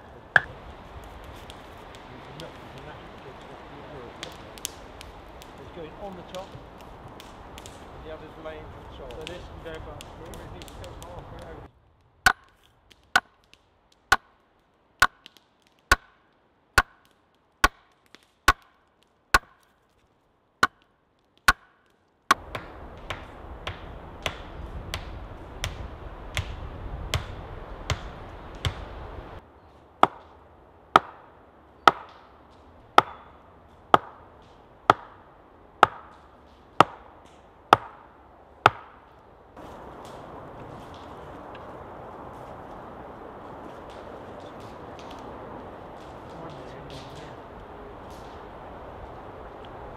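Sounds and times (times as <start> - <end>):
hammer striking wooden post: 12.3 - 12.6, 13.2 - 13.4, 14.1 - 14.4, 15.0 - 16.2, 16.8 - 18.8, 19.4 - 19.7, 20.6 - 20.9, 21.5 - 25.8, 30.0 - 30.3, 31.0 - 31.2, 31.9 - 32.2, 32.9 - 33.3, 33.9 - 34.2, 34.9 - 35.2, 35.8 - 36.2, 37.7 - 39.0.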